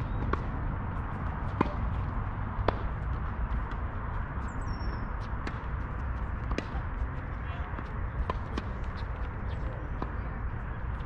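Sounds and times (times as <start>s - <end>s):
steady low rumble: 0.0s - 11.0s
tennis ball strikes: 0.2s - 0.6s, 1.4s - 3.0s, 5.4s - 6.9s, 7.8s - 9.1s.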